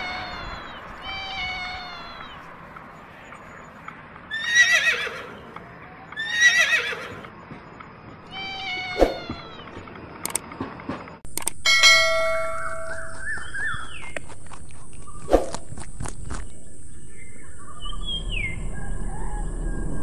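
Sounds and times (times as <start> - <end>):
cat meowing: 0.0 - 2.5, 8.3 - 9.7
horse whinnying: 4.3 - 5.4, 6.2 - 7.2.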